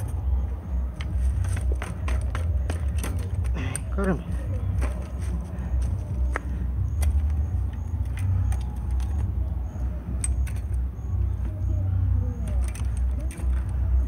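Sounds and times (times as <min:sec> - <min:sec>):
bike chain clicks and rattles: 0:00.0 - 0:14.0
steady low rumble: 0:00.0 - 0:14.0.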